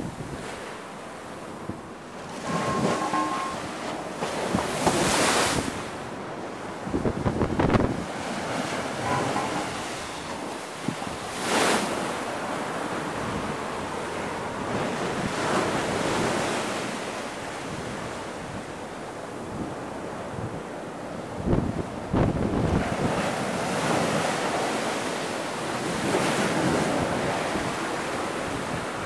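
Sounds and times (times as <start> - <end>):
waves breaking over sea wall: 0.0 - 29.0
wind buffeting microphone: 4.1 - 16.5, 19.4 - 24.6.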